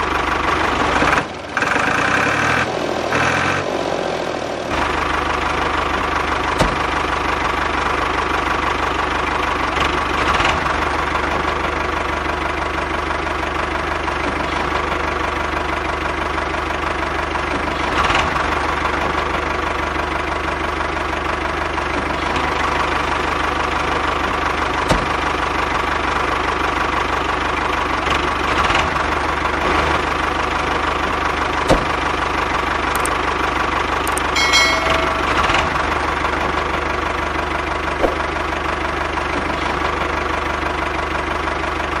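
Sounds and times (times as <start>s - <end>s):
sharp clicks: 33.0s - 33.2s.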